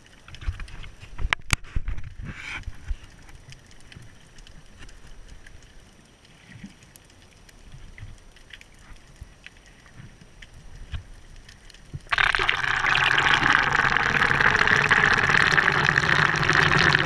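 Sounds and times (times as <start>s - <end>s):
faint underwater clicks: 0.0s - 17.0s
water and bubbles rushing: 8.8s - 17.0s.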